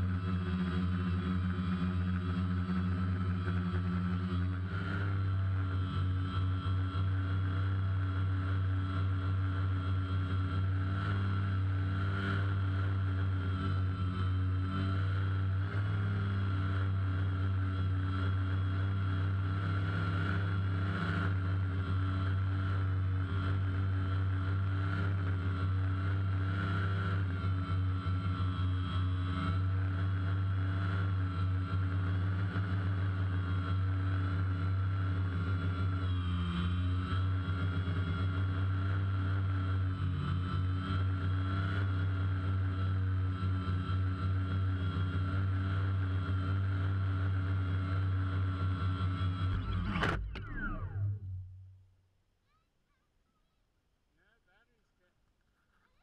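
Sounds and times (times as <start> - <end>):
drone propellers whirring: 48.1 - 51.8.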